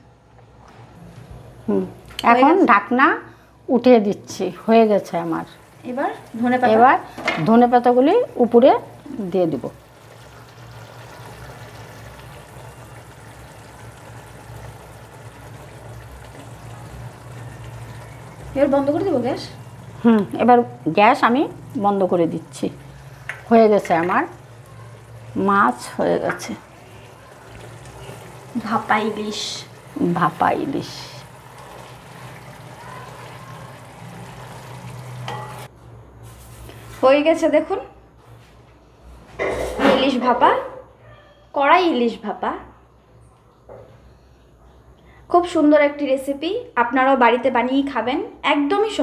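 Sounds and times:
gas burner hum: 0:04.3 - 0:35.7
gravy sizzling in a pan: 0:04.3 - 0:35.7
sauce simmering hiss: 0:08.3 - 0:35.7
spatula scraping a pan: 0:35.2 - 0:35.7.

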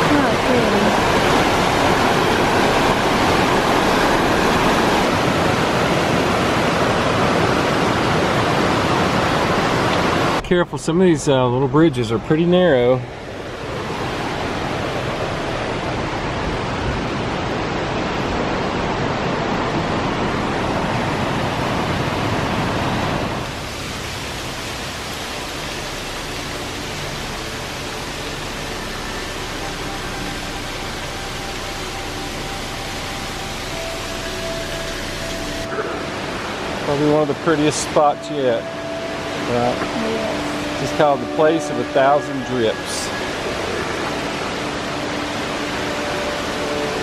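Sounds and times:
creek water rushing: 0:00.0 - 0:47.0
faint steady hum: 0:23.2 - 0:47.0.

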